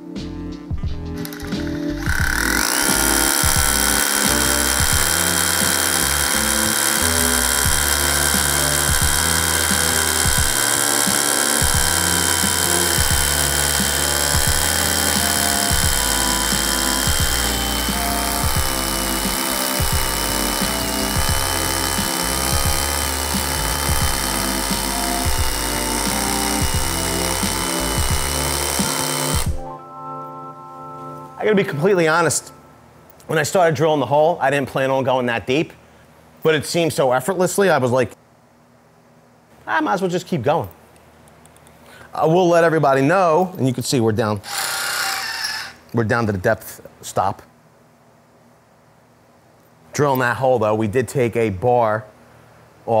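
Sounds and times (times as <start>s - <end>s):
rotary hammer drilling into concrete: 1.2s - 29.6s, 44.4s - 45.8s.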